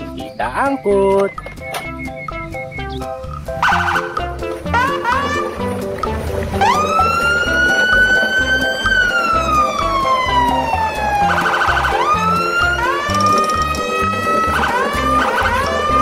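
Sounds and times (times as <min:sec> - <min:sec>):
background music with steady beat: 0:00.0 - 0:16.0
wailing siren: 0:03.6 - 0:05.5, 0:06.6 - 0:16.0.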